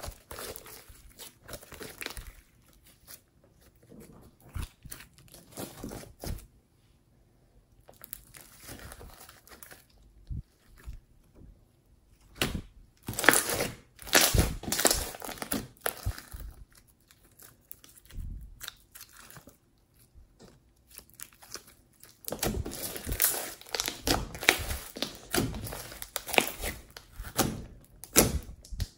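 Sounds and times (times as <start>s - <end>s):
slime squelching and popping: 0.0s - 6.4s, 12.3s - 19.6s, 20.3s - 28.9s.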